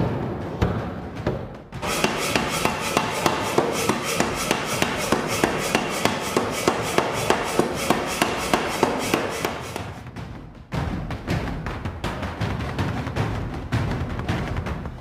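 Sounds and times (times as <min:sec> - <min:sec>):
power hammer striking: 0:01.8 - 0:10.1.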